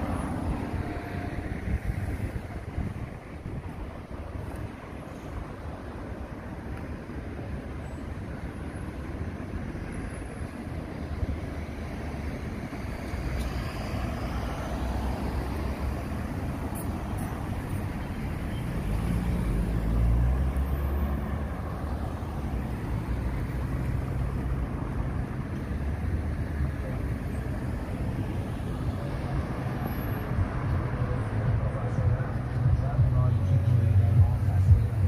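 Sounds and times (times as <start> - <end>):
road traffic passing: 0.0 - 35.0
vehicle engine hum passing close: 11.0 - 35.0.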